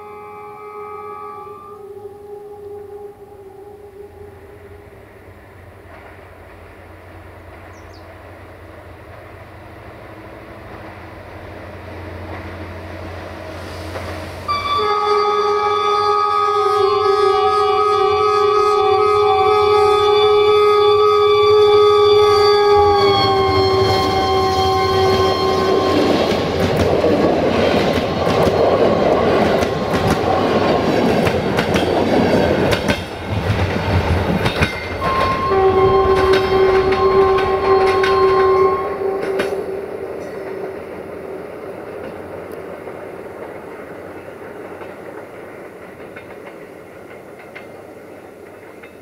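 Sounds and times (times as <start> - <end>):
multi-tone locomotive horn: 0.0 - 5.5, 13.5 - 26.8, 34.8 - 41.0
train coaches rumbling: 1.9 - 49.0
wheels clicking over rail joints: 5.8 - 8.1, 22.8 - 49.0.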